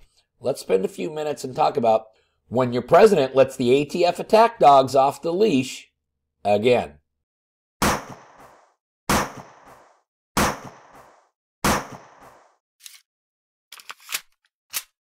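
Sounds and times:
sharp bangs: 7.8 - 12.5.

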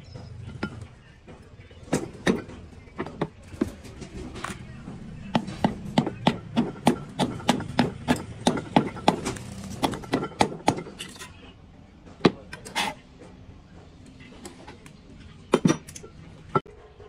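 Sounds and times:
hammer strikes: 0.4 - 3.7, 4.8 - 11.2.

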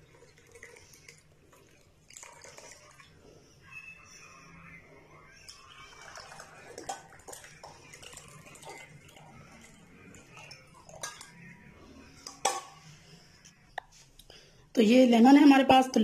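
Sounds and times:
tea pouring into cups: 0.0 - 3.3, 5.2 - 12.8.

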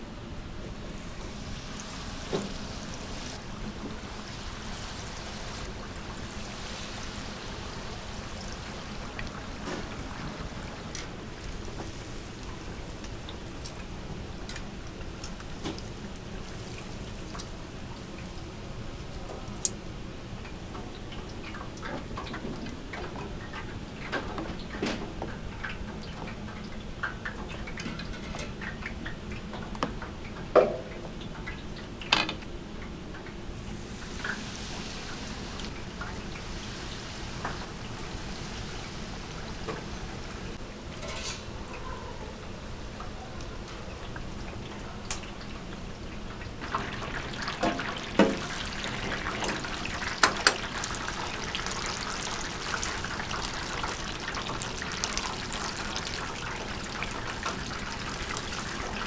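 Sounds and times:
meat sizzling: 46.6 - 59.0.

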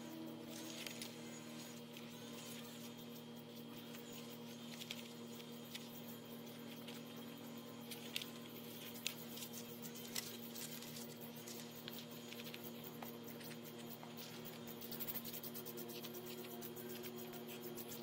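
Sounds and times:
low hum: 0.0 - 18.0
stems rustling: 0.4 - 2.9, 7.8 - 15.0.

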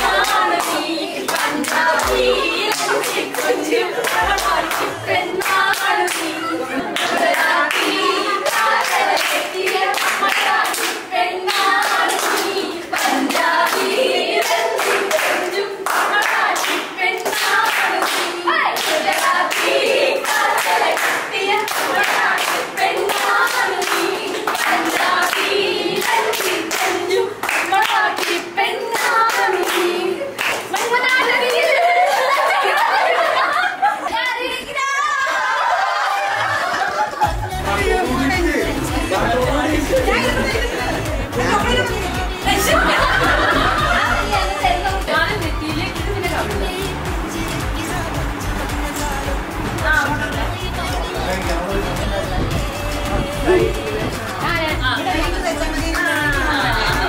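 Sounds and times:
hands clapping in rhythm: 0.0 - 33.0, 36.7 - 57.0
women singing together: 0.0 - 57.0.

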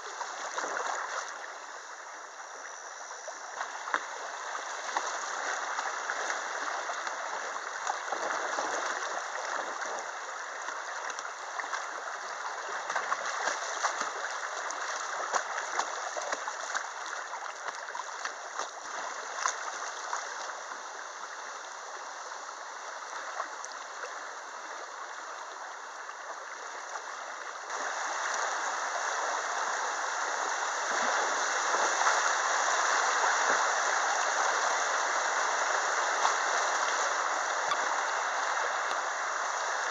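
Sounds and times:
small water splashes: 0.0 - 2.0, 3.2 - 39.9
river water rushing: 0.0 - 39.9.

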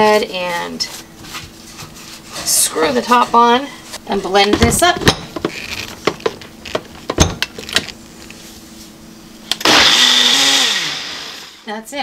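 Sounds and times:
blender motor whirring: 9.5 - 11.7.

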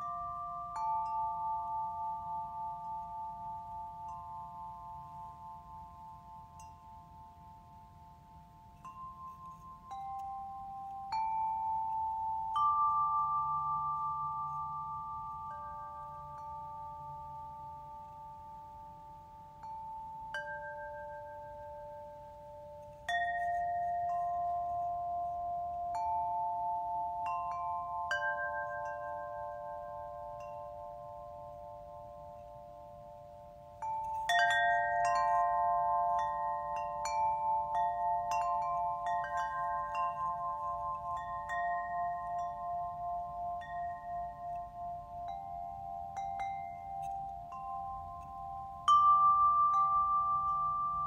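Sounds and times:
small chime bells ringing: 0.0 - 51.0.

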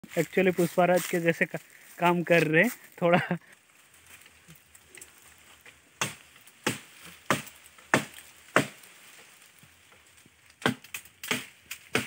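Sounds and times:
axe chopping wood: 6.0 - 8.9, 10.6 - 12.0.

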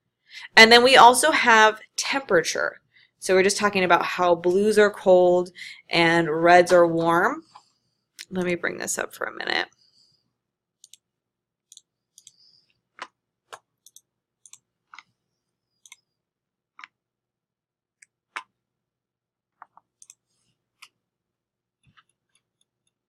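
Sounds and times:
computer mouse clicks: 10.8 - 11.1, 11.7 - 12.4, 13.0 - 15.1, 19.6 - 20.2.

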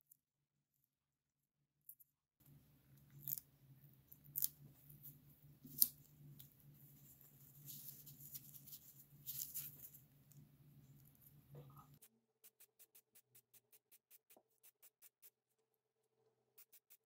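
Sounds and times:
faint low hum: 2.4 - 12.1.

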